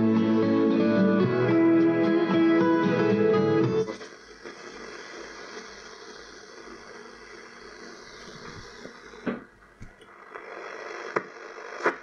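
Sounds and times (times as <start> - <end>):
guitar music from radio speaker: 0.0 - 5.9
radio static hiss with whistle: 3.8 - 12.0.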